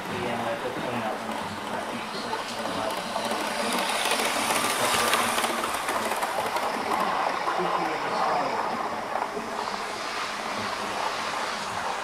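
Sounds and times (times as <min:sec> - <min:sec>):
wheels clicking over track: 0:00.0 - 0:09.8
model train motor whining: 0:01.6 - 0:08.2.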